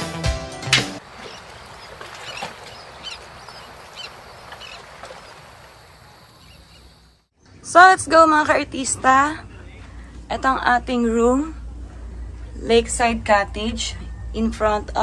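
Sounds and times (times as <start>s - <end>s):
high bird chirps: 1.2s - 5.4s.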